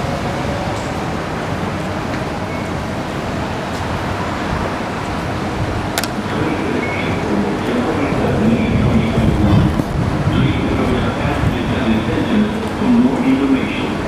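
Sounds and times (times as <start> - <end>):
station background noise: 0.0 - 14.0.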